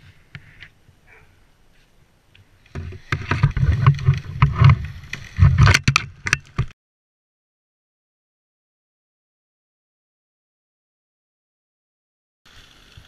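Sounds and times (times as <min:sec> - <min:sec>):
rushing and rumbling on camera: 0:02.7 - 0:06.8.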